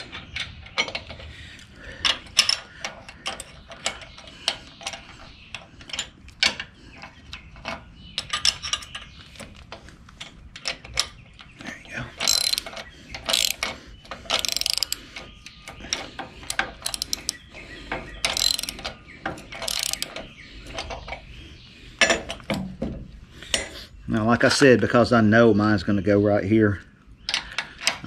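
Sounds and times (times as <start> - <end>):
ratchet wrench clicking: 12.2 - 12.7, 13.3 - 13.6, 14.3 - 15.0, 16.4 - 17.4, 18.3 - 18.8, 19.6 - 20.2.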